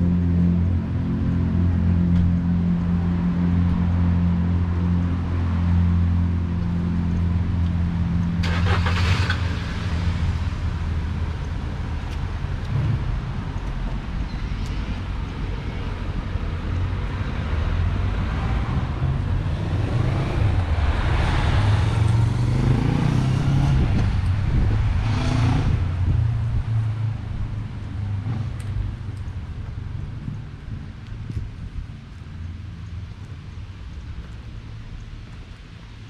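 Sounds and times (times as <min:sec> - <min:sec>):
rumble of road traffic: 0:00.0 - 0:36.0
car driving past: 0:18.2 - 0:26.2.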